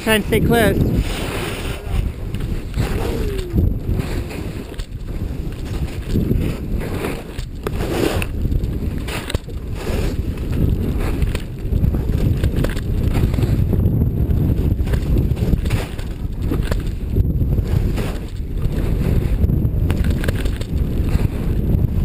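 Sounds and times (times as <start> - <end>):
wind buffeting microphone: 0.0 - 22.0
skis running through snow: 3.8 - 22.0.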